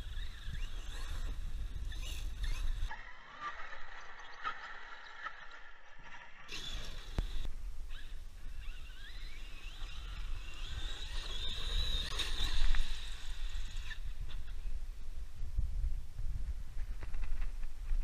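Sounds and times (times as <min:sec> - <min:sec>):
electric motor whining: 0:00.0 - 0:02.9, 0:06.5 - 0:14.5
wind rumble on microphone: 0:07.2 - 0:18.0.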